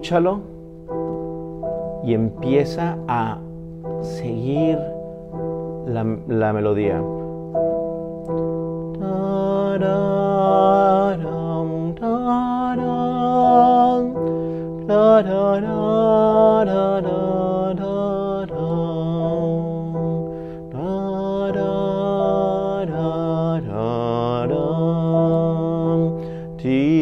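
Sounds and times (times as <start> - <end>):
digital piano playing: 0.0 - 27.0
person singing without words: 2.0 - 5.1, 8.9 - 27.0.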